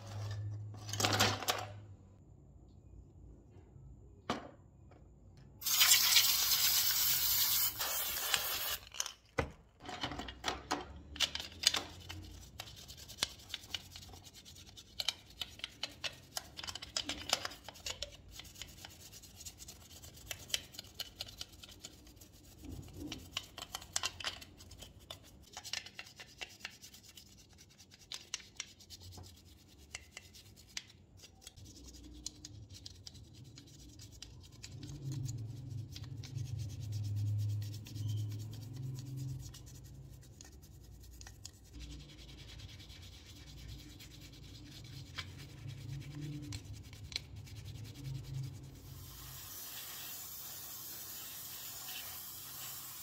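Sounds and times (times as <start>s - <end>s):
cotton swab scrubbing: 11.9s - 50.1s.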